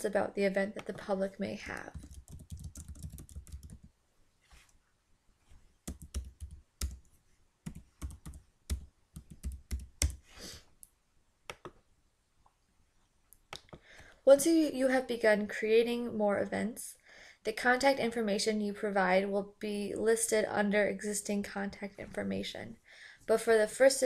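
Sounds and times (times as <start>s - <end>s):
typing on computer keyboard: 1.8s - 3.9s, 5.9s - 7.1s, 7.7s - 10.2s.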